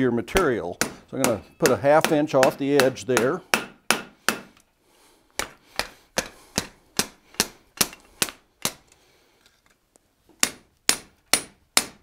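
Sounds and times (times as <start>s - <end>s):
hammer striking steel on anvil: 0.3s - 4.5s, 10.4s - 12.0s.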